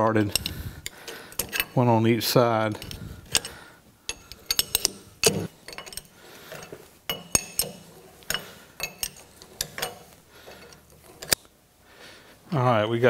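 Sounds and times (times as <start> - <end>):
wrench clinking on metal: 0.0 - 11.4.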